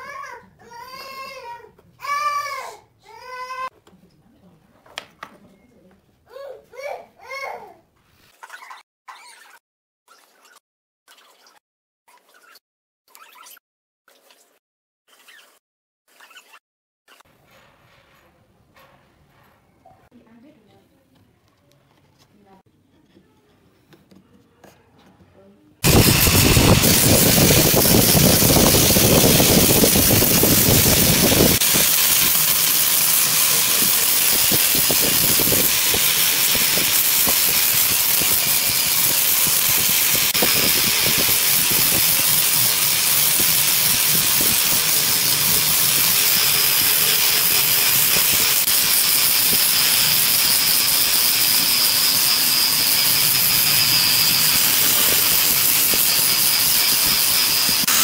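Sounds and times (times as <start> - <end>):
angle grinder sanding wood: 25.8 - 58.0.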